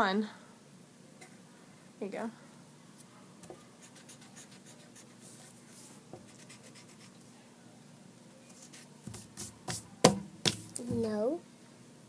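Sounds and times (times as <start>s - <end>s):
pencil scratching on paper: 3.8s - 7.1s.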